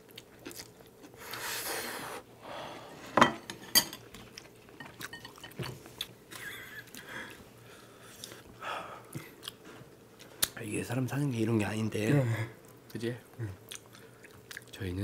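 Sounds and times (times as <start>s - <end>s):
wet chewing: 13.6s - 14.8s.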